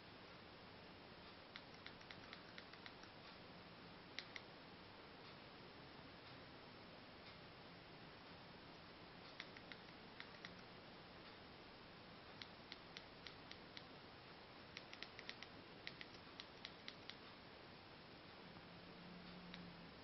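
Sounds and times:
faint steady hiss: 0.0s - 20.0s
remote control buttons clicking: 1.5s - 3.2s, 4.2s - 4.5s, 9.3s - 10.6s, 14.7s - 17.2s.

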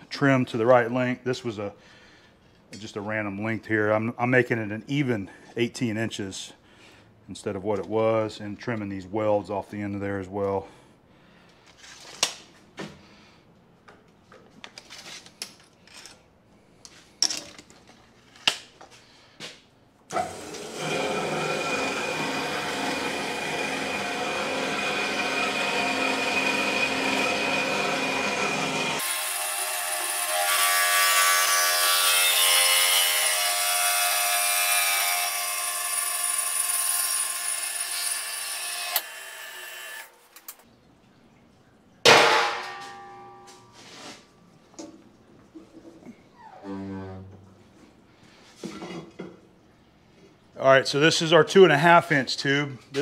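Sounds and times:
band saw cutting steel: 20.2s - 40.1s.

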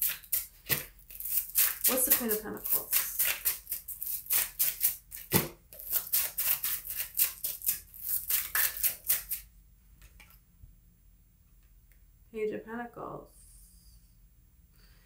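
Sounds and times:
cards shuffled by hand: 0.0s - 9.4s.

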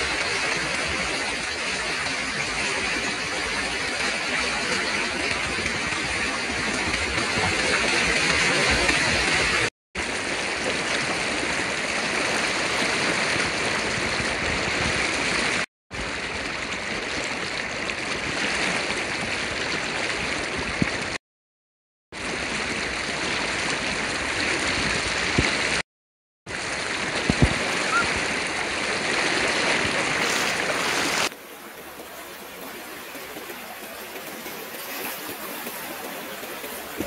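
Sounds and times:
river water rushing: 10.1s - 15.4s, 26.5s - 37.0s.

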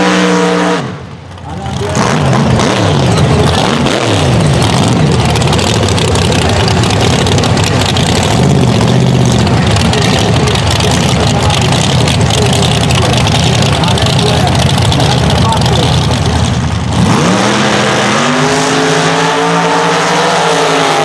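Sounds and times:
engine revving high: 1.8s - 7.1s, 16.9s - 21.0s.

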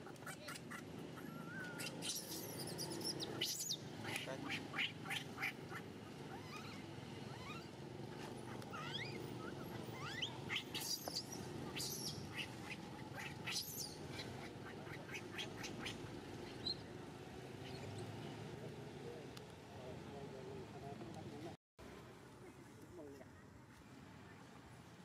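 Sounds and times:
low background noise: 0.0s - 25.0s
baby monkey squeaky cries: 0.2s - 7.7s, 8.5s - 15.9s.

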